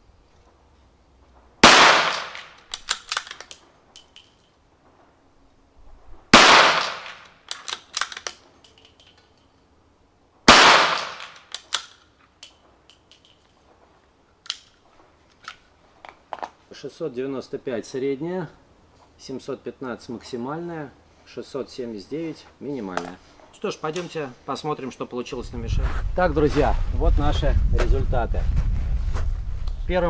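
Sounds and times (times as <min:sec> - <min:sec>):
rifle shots: 0:01.6 - 0:03.4, 0:06.3 - 0:08.3, 0:10.5 - 0:11.9
rifle bolt clicking: 0:02.1 - 0:04.4, 0:06.8 - 0:09.5, 0:11.0 - 0:13.4, 0:14.4 - 0:15.6.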